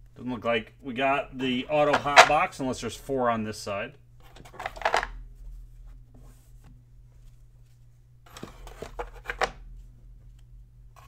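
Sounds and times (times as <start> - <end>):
low steady hum: 0.0 - 11.0
trading cards sliding and snapping: 8.3 - 9.6.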